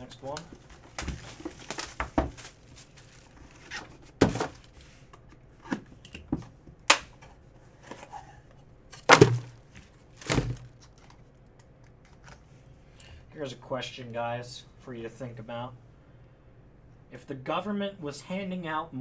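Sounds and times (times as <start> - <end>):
box handling knocks and scrapes: 0.6 - 2.6, 3.5 - 4.8
thuds: 9.1 - 9.6.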